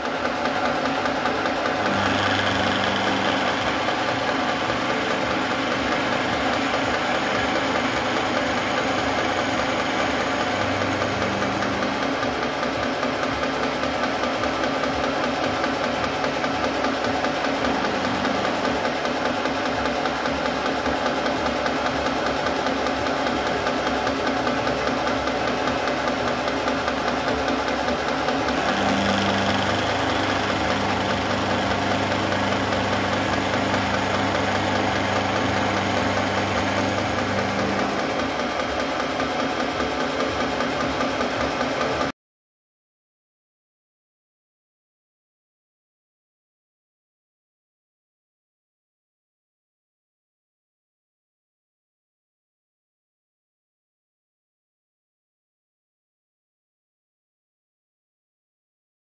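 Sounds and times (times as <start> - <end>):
milling machine cutting metal: 0.0 - 42.1.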